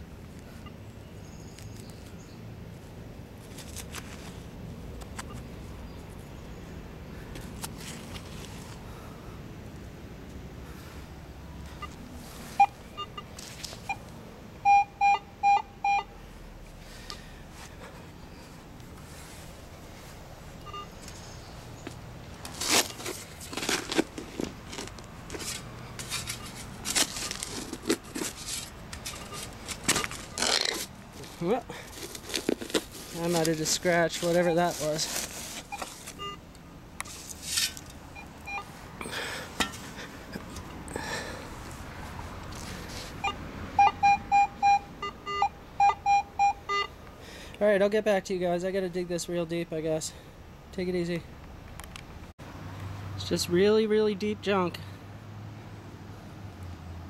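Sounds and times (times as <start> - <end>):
hands scraping in soil: 21.9 - 36.2, 37.0 - 37.9.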